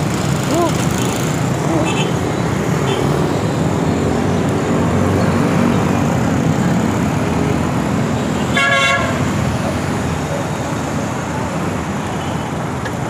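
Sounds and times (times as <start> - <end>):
busy road traffic: 0.0 - 13.0
vehicle horn honking: 8.5 - 9.3.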